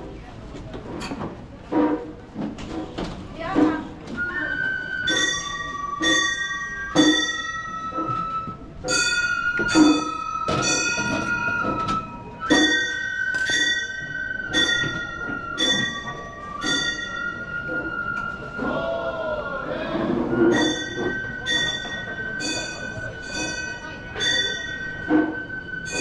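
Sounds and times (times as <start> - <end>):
bamboo flute long notes: 4.1 - 26.0
small brass gongs clanging: 5.1 - 8.2, 8.9 - 17.4, 20.5 - 26.0.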